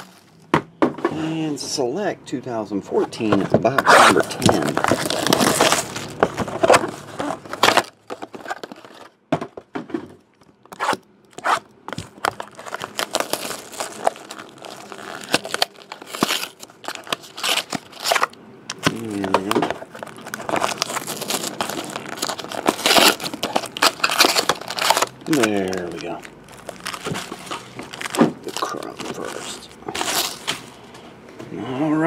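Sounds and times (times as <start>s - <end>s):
foil and plastic wrapping crinkling: 3.9s - 9.1s, 11.4s - 30.9s.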